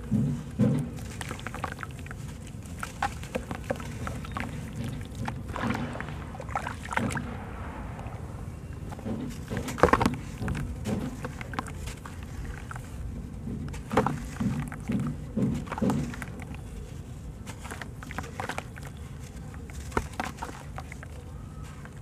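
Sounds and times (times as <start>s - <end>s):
water sloshing in a basin: 0.0s - 22.0s
wet cement crumbling by hand: 0.0s - 22.0s
grit plopping into water: 1.0s - 12.9s.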